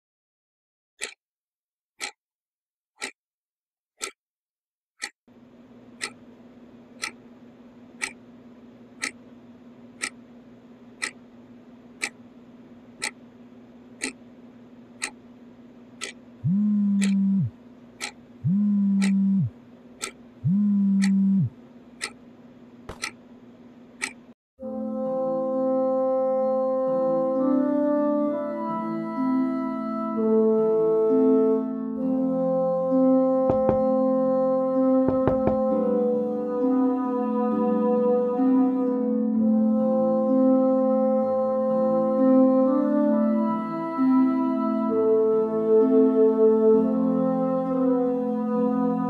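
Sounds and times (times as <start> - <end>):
clock ticking: 1.0 - 1.2, 3.0 - 3.2, 6.0 - 6.2, 7.0 - 7.2, 8.0 - 8.2, 9.0 - 9.2, 10.0 - 10.2, 11.0 - 11.2, 12.0 - 12.2, 13.0 - 13.2, 14.0 - 14.3, 15.0 - 15.2, 16.0 - 22.2, 22.9 - 23.2, 24.0 - 24.3, 33.5 - 33.9, 35.1 - 35.8
steady low hum: 5.3 - 26.1
smartphone vibrating on desk: 16.4 - 17.5, 18.4 - 19.5, 20.4 - 21.5, 33.5 - 33.9, 35.1 - 35.7.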